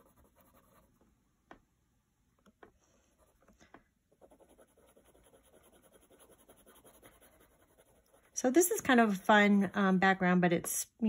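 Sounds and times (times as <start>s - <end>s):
colored pencil scratching on paper: 0.0s - 1.0s, 2.8s - 9.5s.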